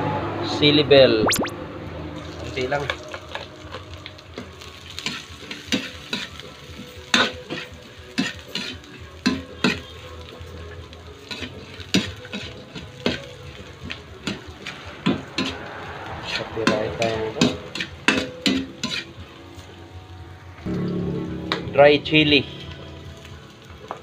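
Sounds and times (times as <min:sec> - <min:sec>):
food sizzling: 0:02.2 - 0:24.0
metal ladle scraping a wok: 0:07.1 - 0:09.9, 0:11.3 - 0:13.2, 0:14.2 - 0:19.3.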